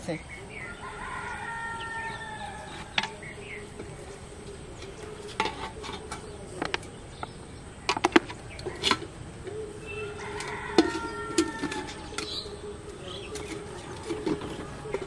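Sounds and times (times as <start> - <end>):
metal plate and pot clinking: 4.8 - 6.9, 10.2 - 12.5, 13.3 - 15.0.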